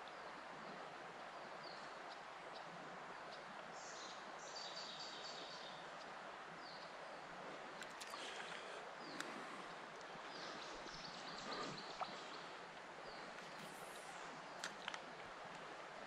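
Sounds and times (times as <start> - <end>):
flowing river water: 0.0 - 16.0
birds chirping: 3.8 - 15.0.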